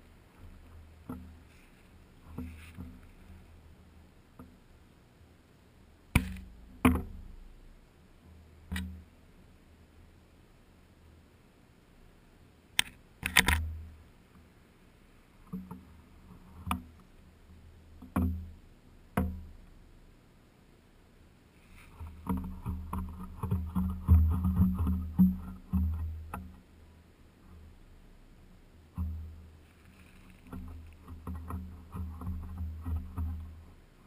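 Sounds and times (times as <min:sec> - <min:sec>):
knocks and rattles on camera rig: 0:22.0 - 0:26.5, 0:30.0 - 0:33.7.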